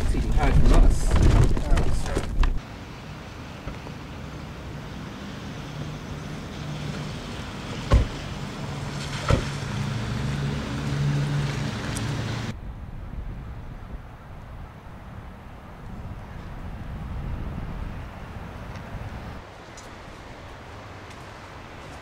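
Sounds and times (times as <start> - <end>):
outdoor ambience: 0.0 - 22.0
car doors slamming: 7.8 - 8.3, 9.2 - 9.6
wind on microphone: 12.5 - 19.4.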